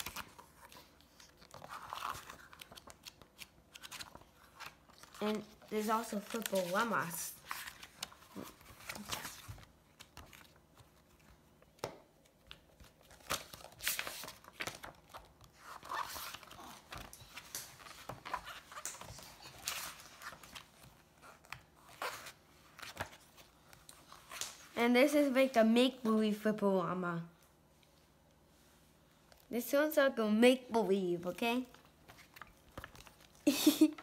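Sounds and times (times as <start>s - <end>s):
pages being turned: 0.0s - 11.5s, 12.3s - 24.8s, 31.7s - 33.5s.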